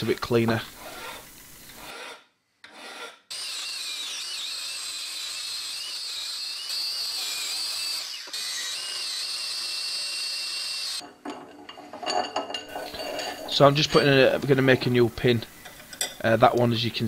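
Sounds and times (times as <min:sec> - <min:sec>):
angle grinder wire wheel whine: 0:03.3 - 0:11.1.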